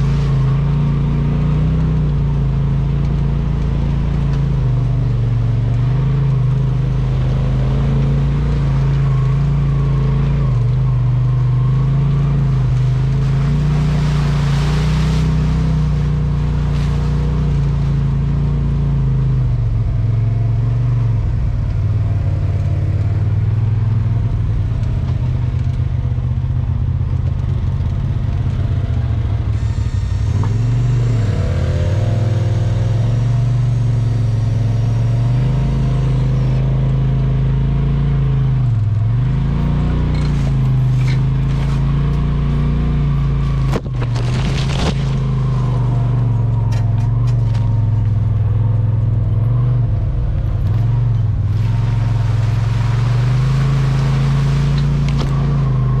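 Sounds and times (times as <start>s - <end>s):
off-road vehicle engine running: 0.0s - 56.0s.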